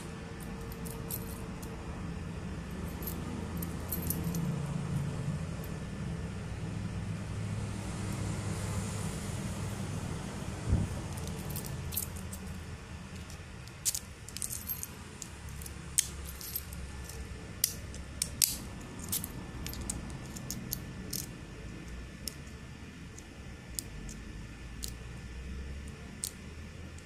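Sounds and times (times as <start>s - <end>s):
keys jingling against padlock: 0.0s - 1.8s, 2.7s - 5.8s, 10.9s - 22.6s.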